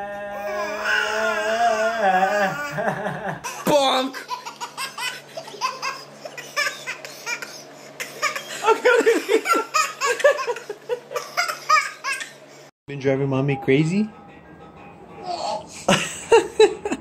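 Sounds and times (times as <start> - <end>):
toddler laughing: 1.9 - 12.5.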